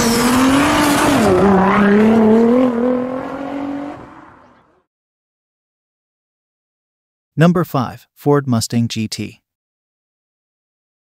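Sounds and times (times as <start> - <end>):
car engine revving high: 0.0 - 4.8.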